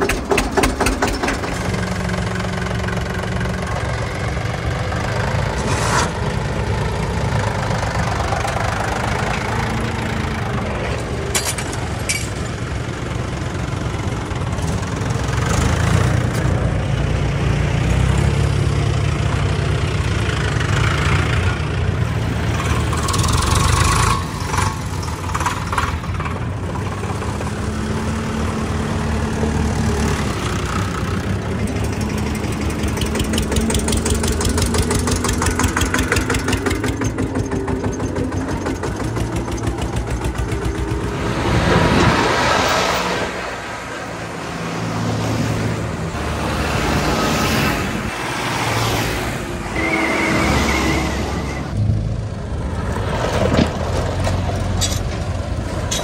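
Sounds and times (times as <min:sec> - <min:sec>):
diesel tractor engines idling: 0:00.0 - 0:56.0.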